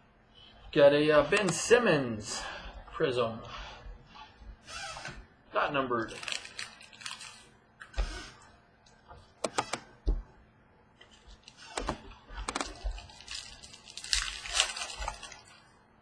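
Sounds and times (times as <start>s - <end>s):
cards rustling: 6.0s - 7.5s, 11.0s - 15.7s.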